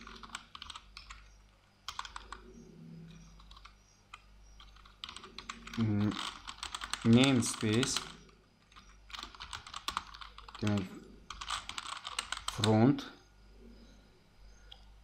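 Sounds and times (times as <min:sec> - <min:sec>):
person's voice: 0:07.0 - 0:08.1, 0:10.6 - 0:11.0, 0:12.5 - 0:13.2.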